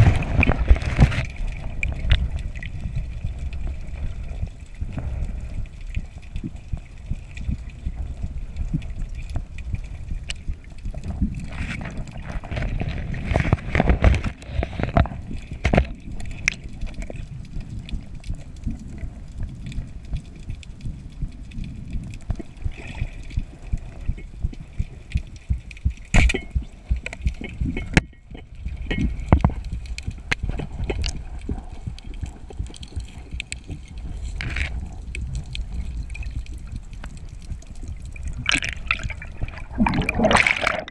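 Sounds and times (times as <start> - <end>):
muffled underwater rumble: 0.0 - 40.9
sharp clicks and knocks: 24.1 - 34.8
water sloshing surges: 38.2 - 40.9.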